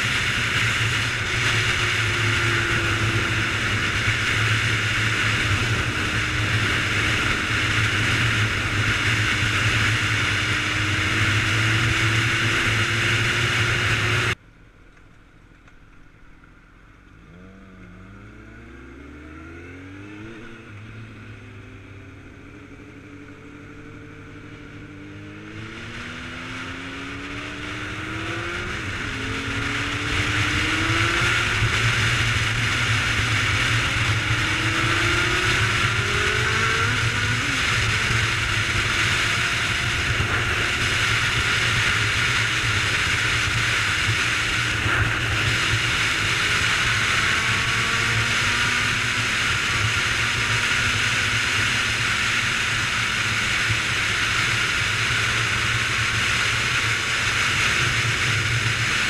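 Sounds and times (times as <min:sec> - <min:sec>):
motorcycle engine accelerating: 0:00.0 - 0:14.4, 0:16.9 - 0:59.0.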